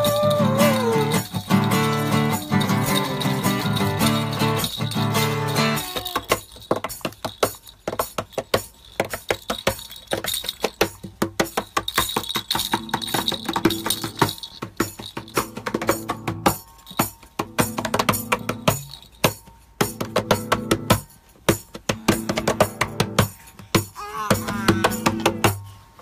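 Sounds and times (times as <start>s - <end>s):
guitar strings ringing: 0.0s - 6.2s
hands tapping guitar body: 17.4s - 18.8s, 19.8s - 25.6s.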